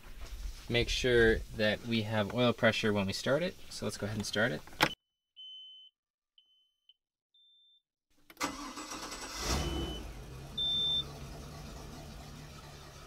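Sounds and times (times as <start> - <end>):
boat engine starting and idling: 8.4 - 13.0
short electronic beeps: 10.6 - 11.0.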